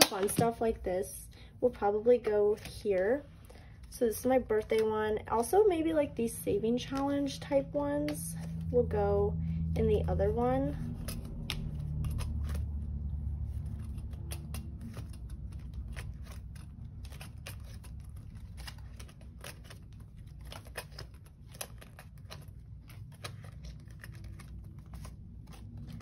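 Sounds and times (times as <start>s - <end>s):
low steady hum: 0.0s - 26.0s
paper and plastic rustling: 10.8s - 26.0s.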